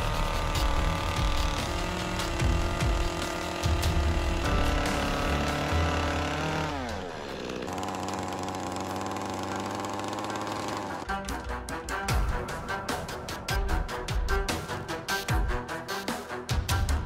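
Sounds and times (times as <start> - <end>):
chainsaw carving wood: 0.0 - 11.5
music: 0.0 - 17.0.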